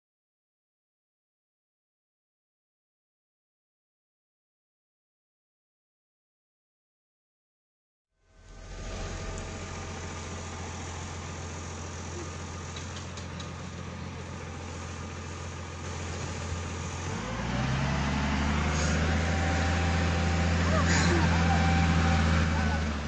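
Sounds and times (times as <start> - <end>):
diesel engine running and revving: 8.3 - 23.0.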